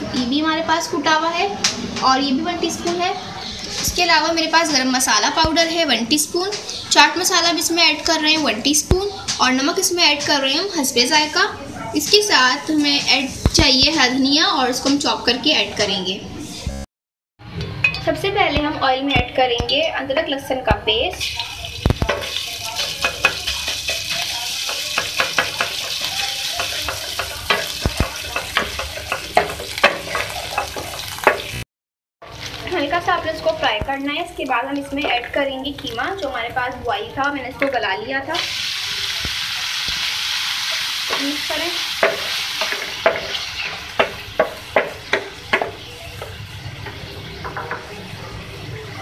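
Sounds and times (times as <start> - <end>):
frying sizzle: 1.6 - 16.0, 21.0 - 31.6, 32.2 - 49.0
paste sizzling in hot oil: 21.2 - 31.6, 38.4 - 47.2
spatula scraping frying pan: 22.0 - 31.6, 40.7 - 47.2.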